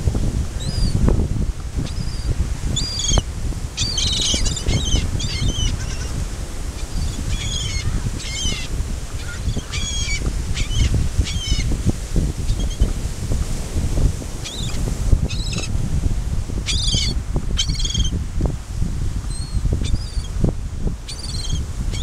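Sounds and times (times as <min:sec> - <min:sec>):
wind: 0:00.0 - 0:22.0
gulls squealing: 0:06.8 - 0:11.6.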